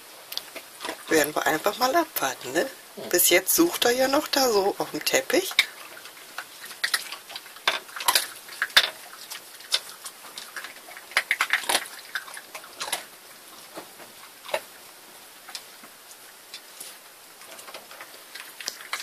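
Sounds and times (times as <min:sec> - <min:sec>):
dog crunching dry kibble: 0:05.4 - 0:13.1, 0:16.6 - 0:19.0.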